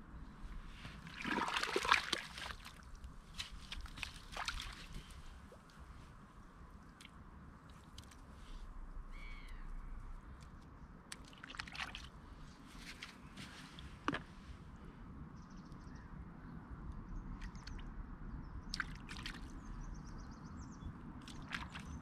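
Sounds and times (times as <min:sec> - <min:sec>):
low wind rumble: 0:00.0 - 0:22.0
wet sand squelching and sloshing: 0:00.5 - 0:08.8, 0:10.3 - 0:14.2, 0:18.7 - 0:19.8, 0:21.2 - 0:22.0
bird calling: 0:09.1 - 0:10.0.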